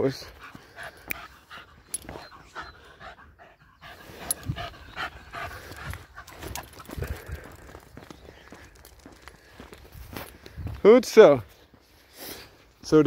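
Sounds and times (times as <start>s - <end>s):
footsteps on paved path: 0.1s - 2.4s, 5.1s - 12.9s
dog panting: 0.2s - 7.8s.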